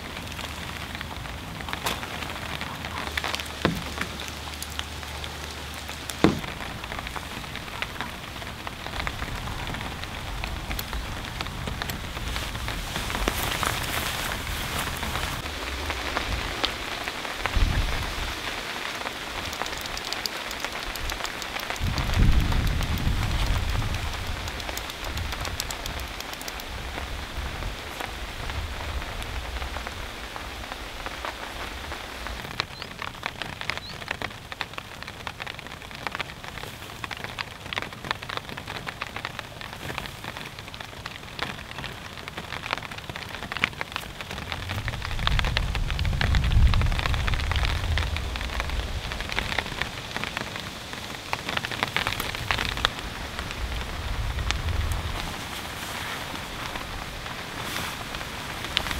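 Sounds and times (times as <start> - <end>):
raindrops ticking on a surface: 0.0 - 58.9
steady rain falling: 0.0 - 58.9.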